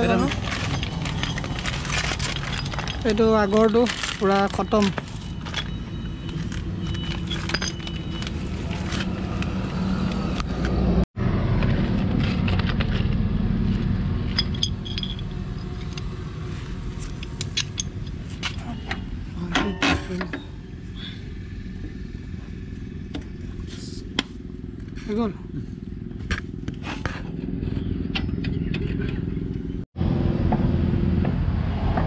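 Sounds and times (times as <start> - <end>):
metal parts clattering: 0.0 - 9.2, 14.1 - 16.2, 17.0 - 20.4
metallic clicks and clinks: 14.2 - 16.2, 17.0 - 20.3.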